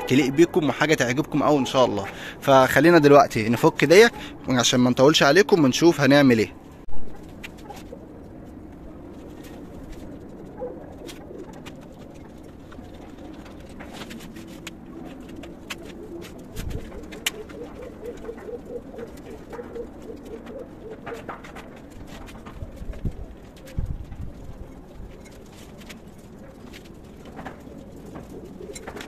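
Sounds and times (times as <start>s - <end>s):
pigeons cooing: 7.1s - 29.0s.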